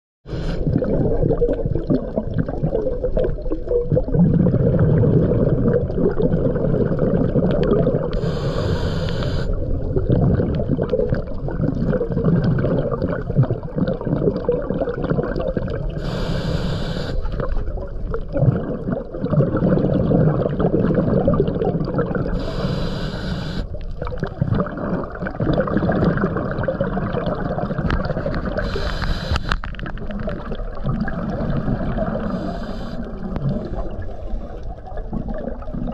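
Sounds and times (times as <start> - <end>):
bubbly gurgling exhales: 0.3 - 35.9
regulator hissing inhales: 8.2 - 9.6, 16.0 - 17.4, 22.4 - 23.7, 28.6 - 29.6, 32.2 - 33.2.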